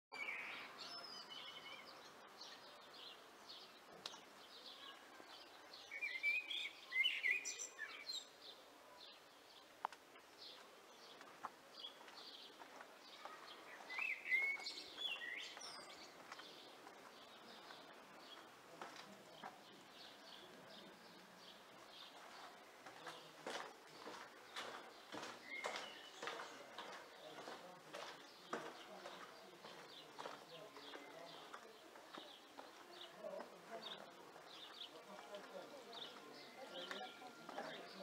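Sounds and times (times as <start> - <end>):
faint outdoor background noise: 0.1 - 38.0
birds chirping and singing: 4.4 - 8.6, 13.2 - 16.8, 24.0 - 38.0.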